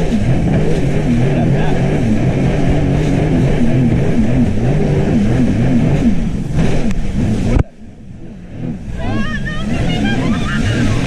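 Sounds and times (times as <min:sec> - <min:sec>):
jet ski engine running: 0:00.0 - 0:11.0.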